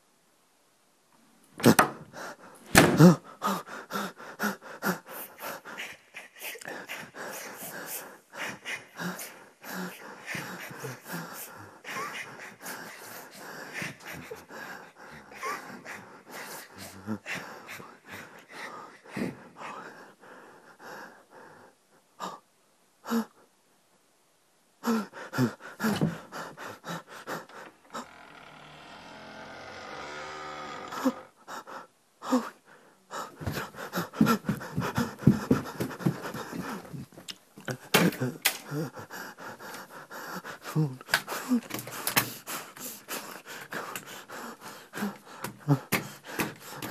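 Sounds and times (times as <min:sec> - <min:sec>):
person breathing heavily: 0:02.0 - 0:22.4, 0:24.8 - 0:28.3, 0:30.8 - 0:46.9.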